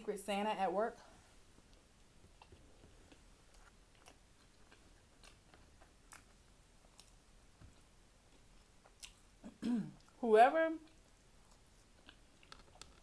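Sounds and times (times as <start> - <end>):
soft chewing clicks: 1.6 - 9.4, 10.8 - 13.0.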